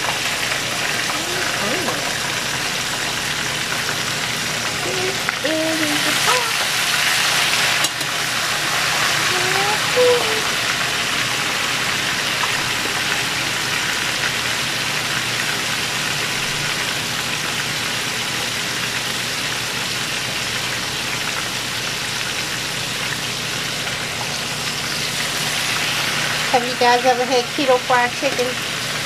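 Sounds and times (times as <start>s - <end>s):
chicken sizzling in oil: 0.0s - 29.0s.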